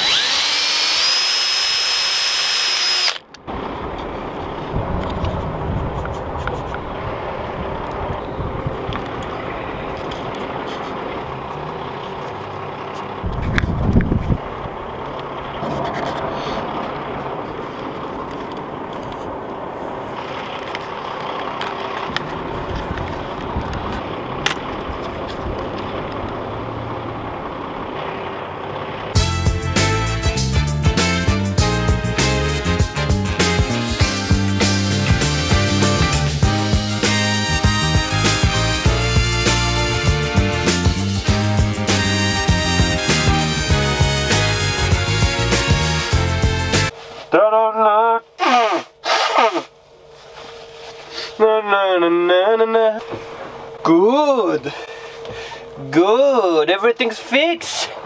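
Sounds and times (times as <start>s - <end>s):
electric drill whining: 0.0s - 3.4s
diesel truck engines idling: 3.3s - 29.2s
rumbling background noise: 3.3s - 29.2s
music: 29.2s - 46.9s.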